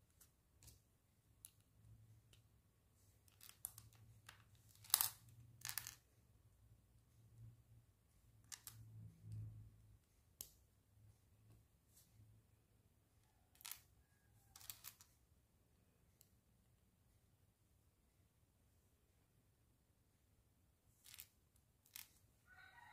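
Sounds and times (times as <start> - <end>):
plastic bricks clicking together: 3.3 - 6.0, 8.5 - 8.8, 13.5 - 13.9, 14.6 - 15.1, 21.0 - 22.2.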